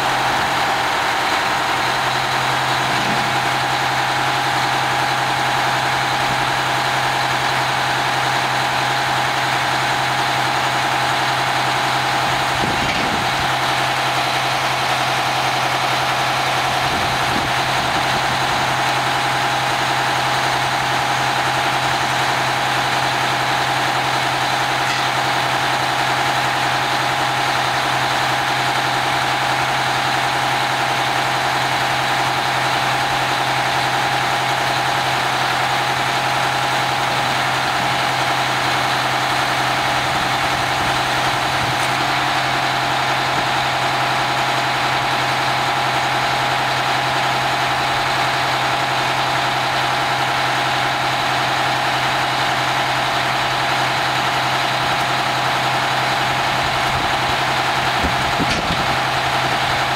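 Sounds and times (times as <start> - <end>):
truck diesel engine running: 0.0 - 59.9.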